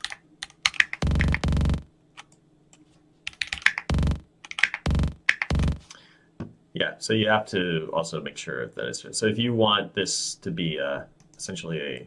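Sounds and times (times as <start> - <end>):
computer keyboard typing and clicks: 0.0 - 2.4, 3.3 - 5.8
buzzy synth bass notes: 1.0 - 1.9, 3.9 - 4.3, 4.9 - 5.9.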